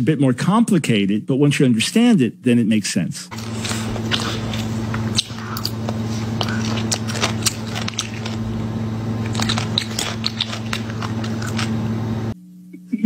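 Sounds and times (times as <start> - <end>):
child chewing crunchy food: 3.3 - 12.4
steady low hum: 3.3 - 13.0
wet mouth clicks: 3.5 - 8.4, 9.2 - 11.8.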